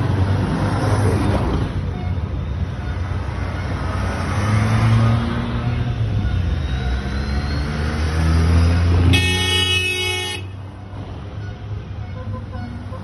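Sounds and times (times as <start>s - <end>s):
vehicles driving past: 0.0s - 13.0s
car horn: 9.0s - 10.6s, 11.3s - 13.0s.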